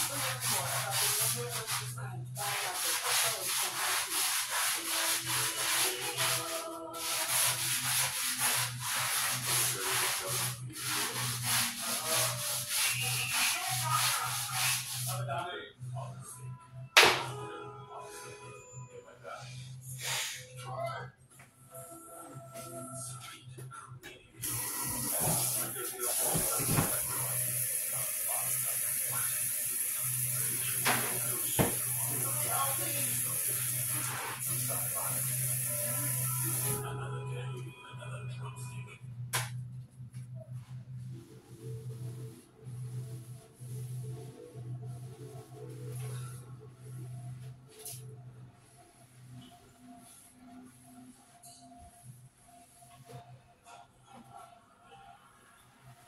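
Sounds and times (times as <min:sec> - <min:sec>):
brush scrubbing tile grout: 0:00.0 - 0:15.3, 0:24.4 - 0:36.8
water running from a tap: 0:24.4 - 0:36.8.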